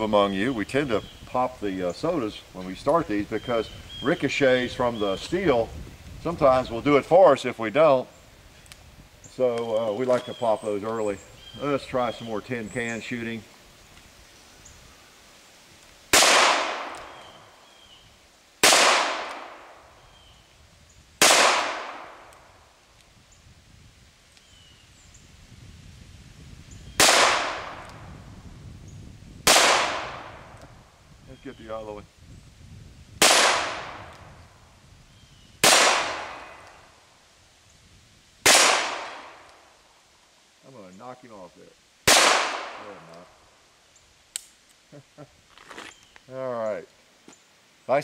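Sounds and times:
revolver gunshot crack: 16.1s - 17.2s, 18.6s - 19.8s, 21.2s - 22.3s, 27.0s - 27.9s, 29.4s - 30.5s, 33.2s - 34.1s, 35.6s - 36.6s, 38.4s - 39.5s, 42.1s - 43.0s.

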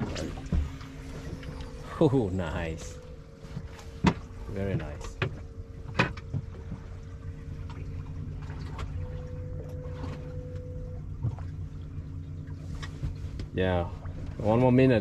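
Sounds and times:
boat engine idling: 0.0s - 15.0s
faint steady whine: 0.0s - 15.0s.

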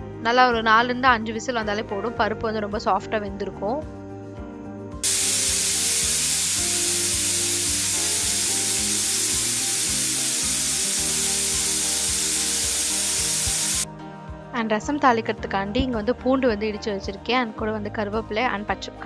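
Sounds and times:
pressure cooker steam hissing: 5.0s - 13.9s.

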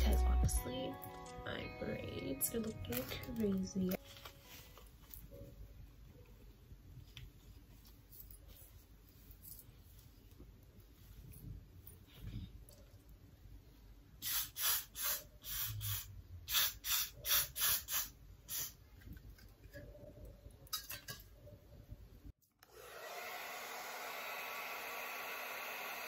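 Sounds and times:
aerosol spray bursts: 14.2s - 18.8s
hair dryer running: 22.6s - 26.0s.

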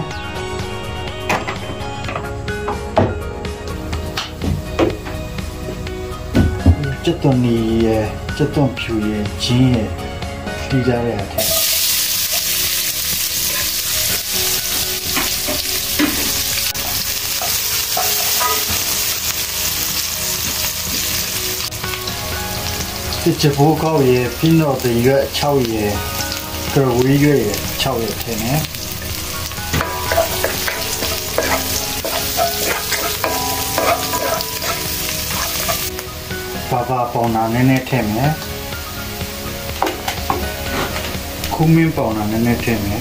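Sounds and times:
onion sizzling in hot oil: 11.4s - 43.0s
wooden spoon stirring in wok: 29.7s - 36.0s.

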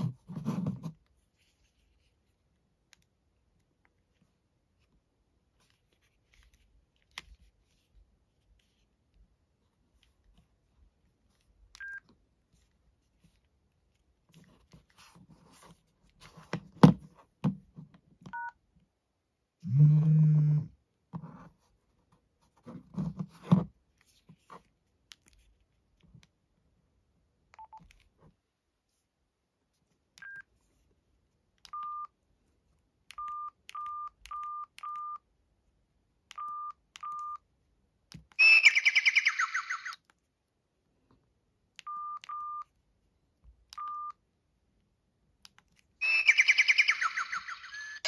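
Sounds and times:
phone keypad beeps: 11.8s - 12.0s, 18.3s - 18.6s, 30.2s - 30.5s, 31.7s - 32.2s, 33.1s - 35.3s, 36.3s - 37.5s, 41.8s - 42.7s, 43.8s - 44.2s.

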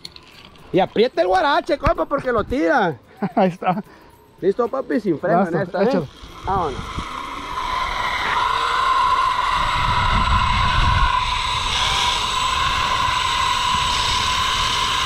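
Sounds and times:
zip line pulleys whining on cable: 5.6s - 15.0s
wind rumbling on microphone: 6.0s - 15.0s.

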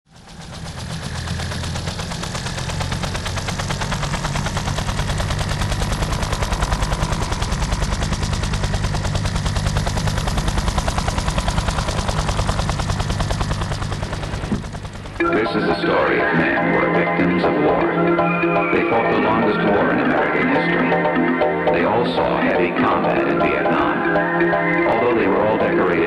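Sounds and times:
fast chopping rattle: 0.1s - 15.2s.

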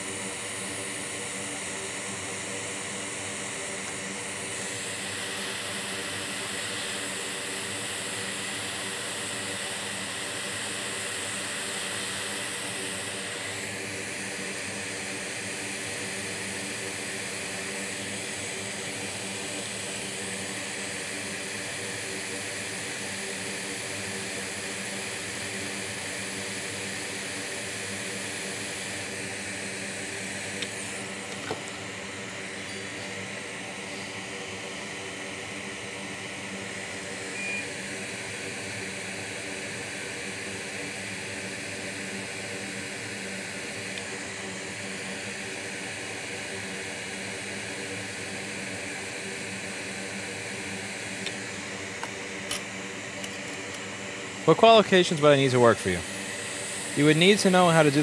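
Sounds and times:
fan hum: 0.0s - 21.3s, 26.4s - 39.6s, 49.2s - 58.0s
hot air station blowing: 0.0s - 58.0s.

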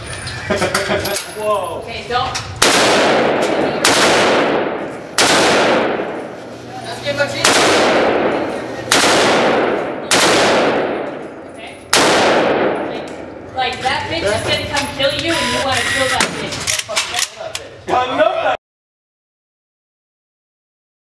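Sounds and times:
rifle shots echoing indoors: 2.6s - 6.6s, 7.2s - 13.4s.

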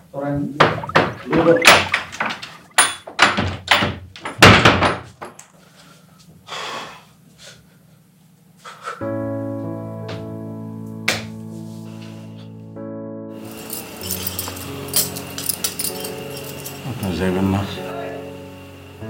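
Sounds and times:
fist pounding on wooden door: 3.2s - 5.1s
music with low held chords: 9.0s - 19.0s.

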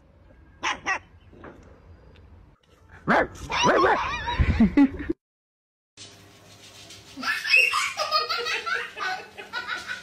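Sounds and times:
people laughing: 7.2s - 10.0s.

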